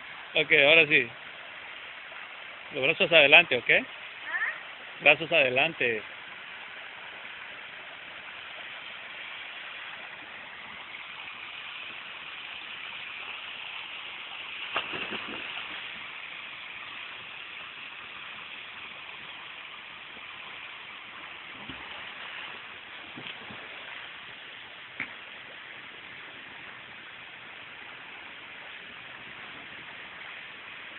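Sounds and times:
water pouring into pool: 0:09.2 - 0:24.7.

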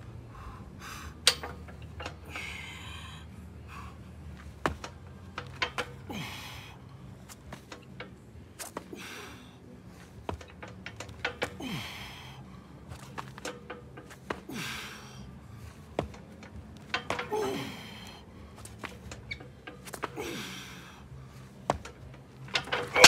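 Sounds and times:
man breathing hard: 0:00.2 - 0:01.3, 0:02.2 - 0:04.3, 0:06.1 - 0:07.2, 0:08.8 - 0:10.0, 0:11.6 - 0:13.1, 0:14.4 - 0:15.9, 0:20.2 - 0:21.6.

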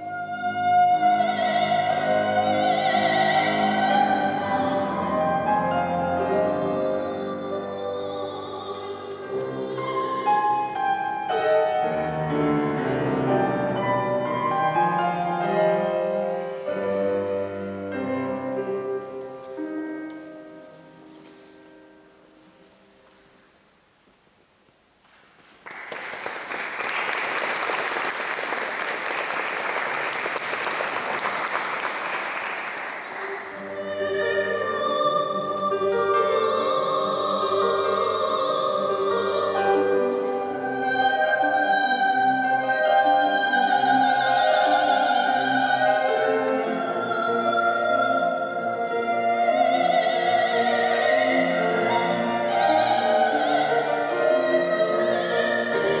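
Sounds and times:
soprano singing: 0:00.0 - 0:23.2, 0:32.9 - 0:56.0
grand piano: 0:00.0 - 0:23.8, 0:25.2 - 0:56.0
audience applause: 0:25.5 - 0:33.6.

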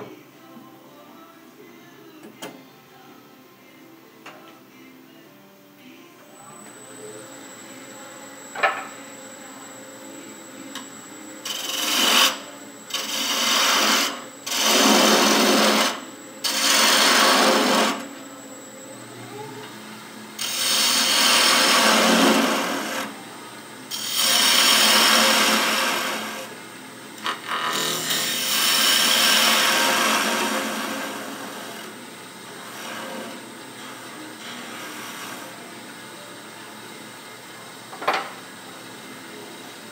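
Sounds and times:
wood lathe humming: 0:06.4 - 0:37.7
turning tool scraping wood: 0:11.4 - 0:18.1, 0:20.4 - 0:23.2, 0:23.9 - 0:26.5, 0:27.2 - 0:32.0, 0:32.6 - 0:35.6.

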